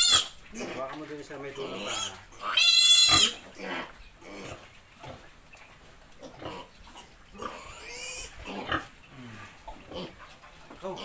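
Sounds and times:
piglet squealing: 0.0s - 0.4s, 1.7s - 3.4s
piglet grunting: 0.0s - 5.3s, 6.2s - 11.0s.

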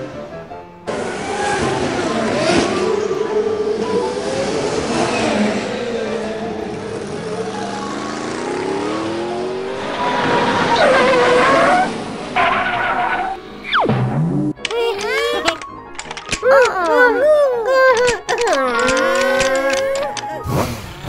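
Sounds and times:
race car engine revving: 0.9s - 14.4s.

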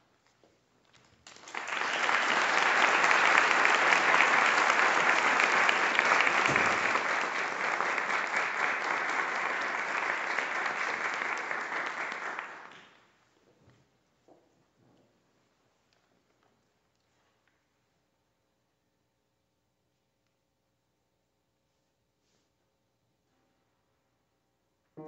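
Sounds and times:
small audience applauding: 1.2s - 13.1s.

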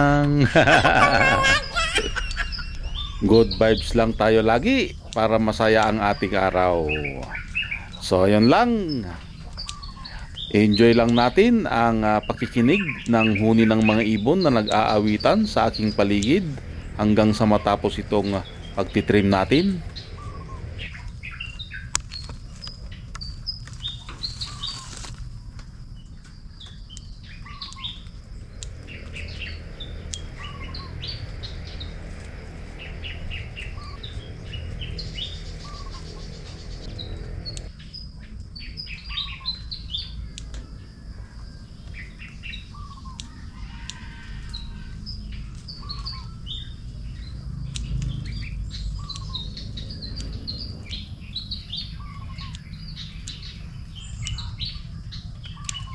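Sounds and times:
steady low rumble: 0.0s - 43.6s
small birds chirping: 0.0s - 55.9s.

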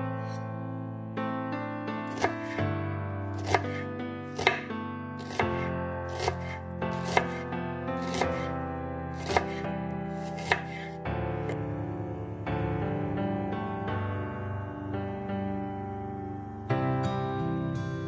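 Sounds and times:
instrumental music: 0.0s - 18.0s
knife slicing onion on board: 2.1s - 2.6s, 3.4s - 8.5s, 9.1s - 11.6s.

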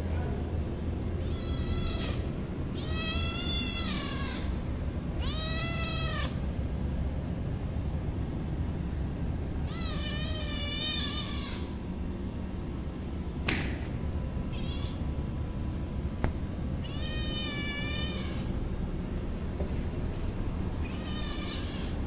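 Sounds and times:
kitten meowing: 1.2s - 4.6s, 5.2s - 6.4s, 9.7s - 11.7s, 14.5s - 15.0s, 16.8s - 18.5s, 20.8s - 22.0s.

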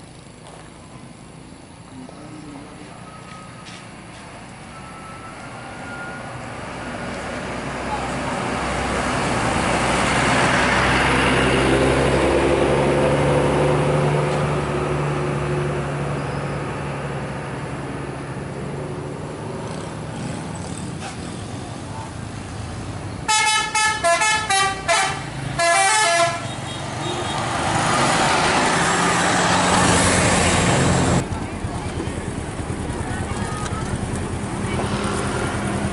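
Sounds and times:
bus diesel engine running: 0.0s - 35.9s
musical horn playing notes: 23.3s - 26.5s.

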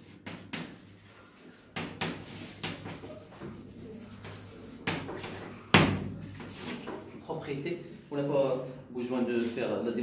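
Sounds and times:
chalk writing on blackboard: 0.0s - 7.1s
chalk knocking on board: 0.1s - 1.0s, 1.6s - 3.6s, 4.2s - 7.0s.

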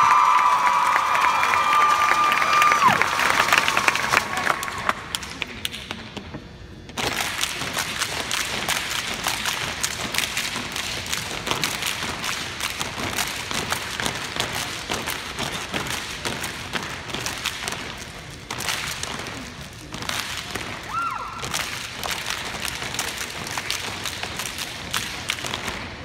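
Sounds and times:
hand clapping: 7.0s - 26.0s.

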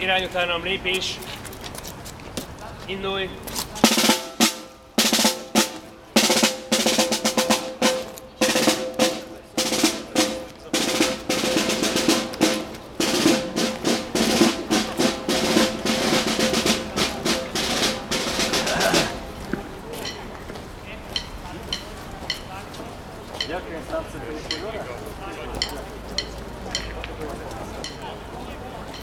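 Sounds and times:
snare drum marching cadence: 3.8s - 19.4s.

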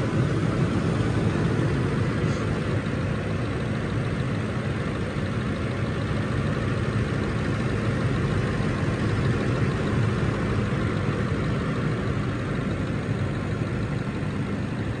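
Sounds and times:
pickup engine idling: 0.0s - 15.0s.

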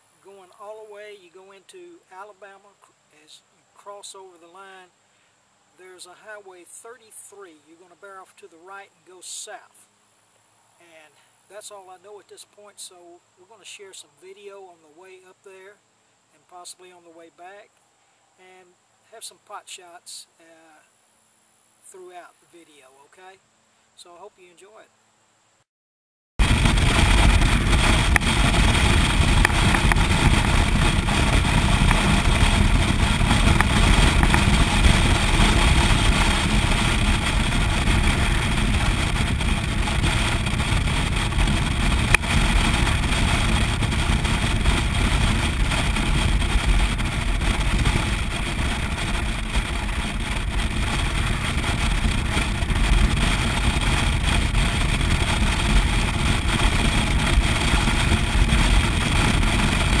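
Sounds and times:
motorcycle engine running: 26.4s - 60.0s
road noise: 26.4s - 60.0s
wind noise: 26.4s - 60.0s.

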